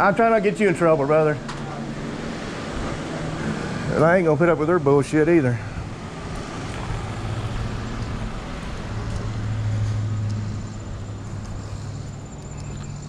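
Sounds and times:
outdoor background noise: 0.0s - 13.0s
low motor hum: 5.6s - 13.0s.

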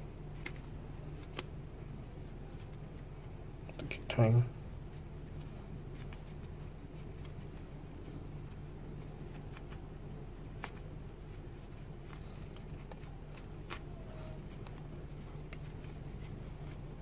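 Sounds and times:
steady low hum: 0.0s - 17.0s
fabric rustling: 4.6s - 17.0s.

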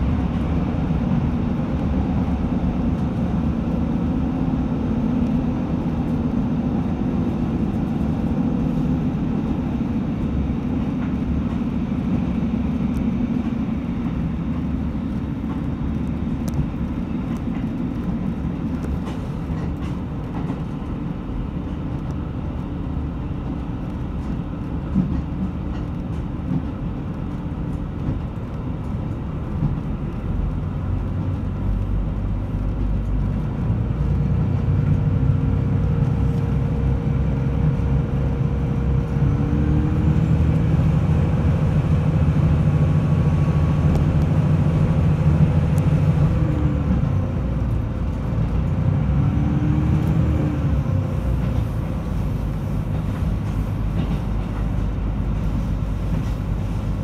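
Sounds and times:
diesel engine drone: 0.0s - 57.0s
train wheels rumbling on rails: 0.0s - 57.0s.

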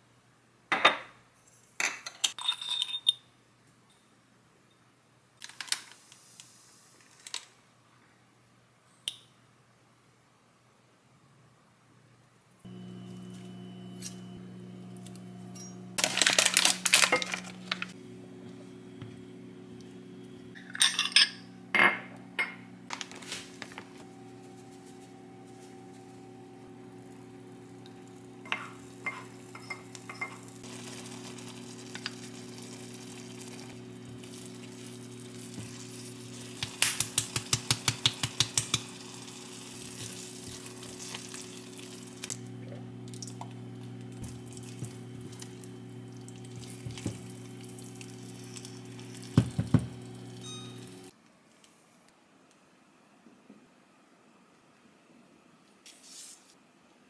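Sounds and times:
sizzling in a pan: 24.1s - 42.4s, 44.2s - 51.1s.

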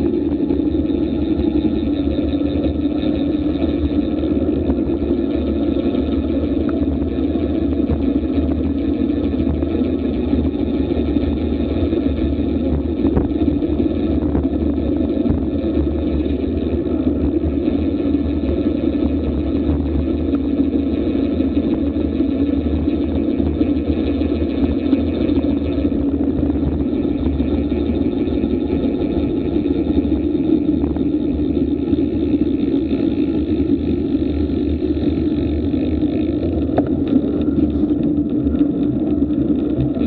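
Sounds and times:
wind rushing over microphone: 0.0s - 20.9s.

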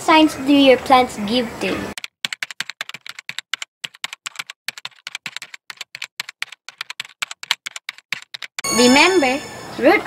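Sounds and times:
keyboard typing clicks: 2.0s - 8.6s.

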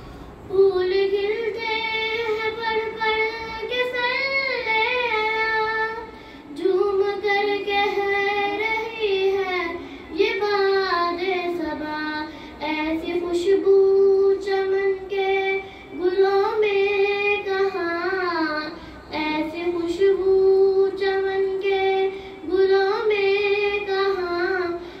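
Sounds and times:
singer breathing: 0.0s - 0.5s, 6.1s - 6.6s, 9.7s - 10.2s, 12.2s - 12.6s, 15.6s - 16.0s, 18.7s - 19.1s, 22.1s - 22.5s, 24.7s - 25.0s.

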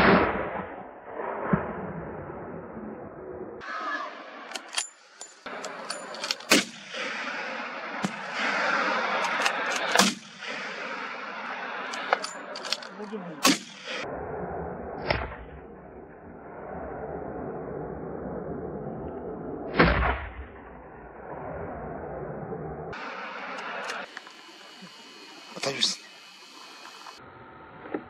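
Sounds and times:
gunshots: 5.4s - 14.0s
background hiss: 23.0s - 27.2s.

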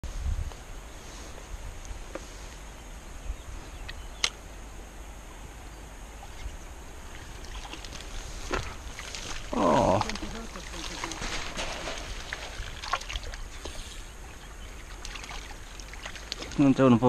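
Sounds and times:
wind rumble on microphone: 0.0s - 10.4s.

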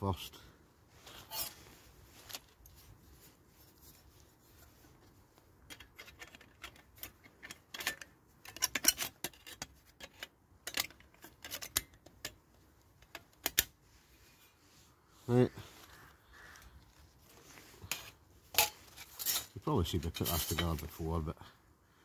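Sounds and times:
metal panels clicking and scraping: 5.6s - 13.8s, 17.8s - 21.0s.

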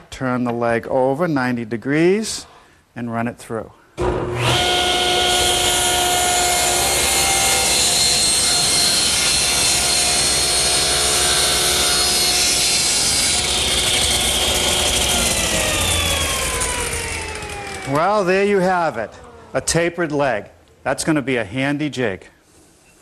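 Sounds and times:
table saw cutting wood: 4.0s - 20.0s.

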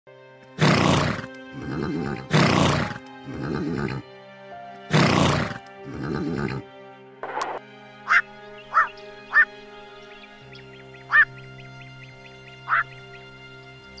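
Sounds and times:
background music: 0.1s - 14.0s
horse neighing: 0.6s - 4.0s, 4.9s - 6.6s.

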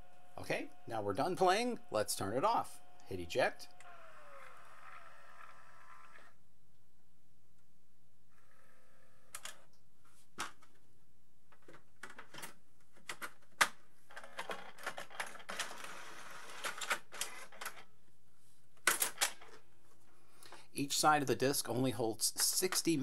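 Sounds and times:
motor and gears whirring: 0.1s - 6.4s.

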